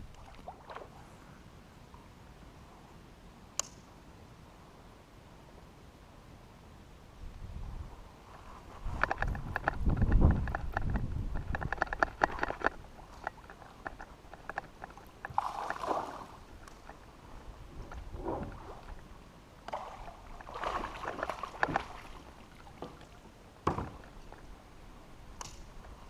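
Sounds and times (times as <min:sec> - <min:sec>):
water splashing around kayak: 0:00.0 - 0:01.2, 0:12.1 - 0:24.6
small clicks and knocks: 0:08.9 - 0:15.8, 0:16.6 - 0:17.0, 0:25.4 - 0:25.7.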